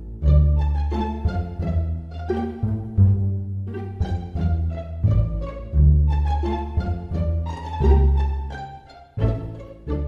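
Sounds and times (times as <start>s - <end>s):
background music with bass line: 0.0s - 10.0s.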